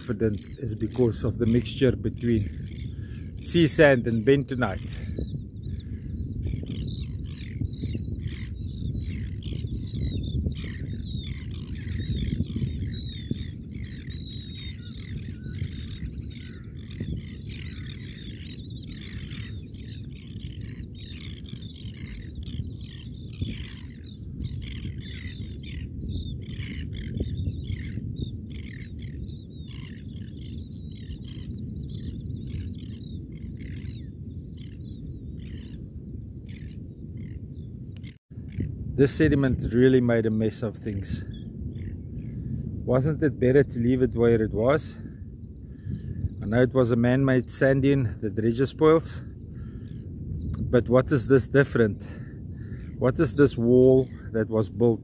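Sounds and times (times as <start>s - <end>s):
seabirds calling: 0.0s - 55.0s.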